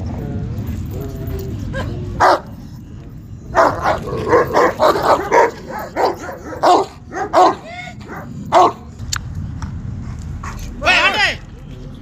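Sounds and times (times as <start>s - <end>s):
dog barking: 2.2s - 2.4s, 3.6s - 8.8s.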